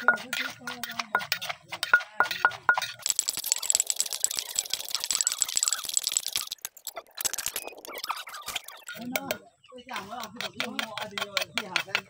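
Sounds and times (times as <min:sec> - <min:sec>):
wooden pestle knocking in mortar: 0:00.0 - 0:03.6, 0:10.2 - 0:12.0
fast clicking rattle: 0:03.0 - 0:09.0.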